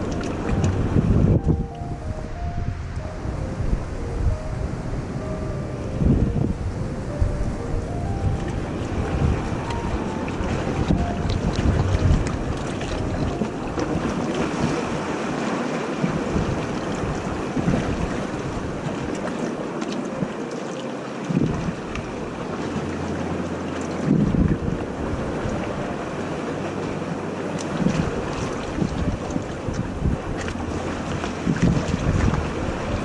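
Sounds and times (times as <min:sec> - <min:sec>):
wind buffeting microphone: 0:00.0 - 0:20.4, 0:21.3 - 0:33.0
water lapping among rocks: 0:08.8 - 0:33.0.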